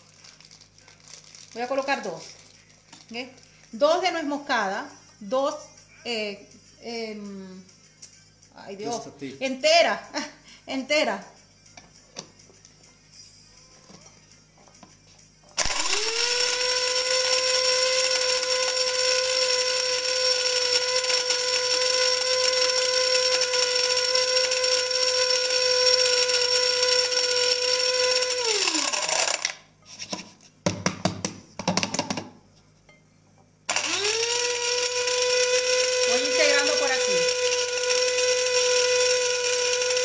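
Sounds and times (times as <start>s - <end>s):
spice grinder motor whining: 15.6s - 29.7s, 33.7s - 40.0s.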